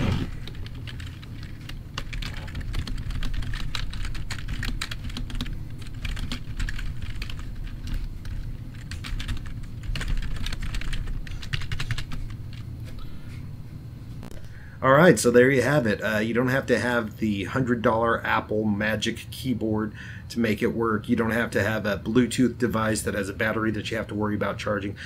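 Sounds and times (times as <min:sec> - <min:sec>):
keyboard typing: 0:00.0 - 0:12.7.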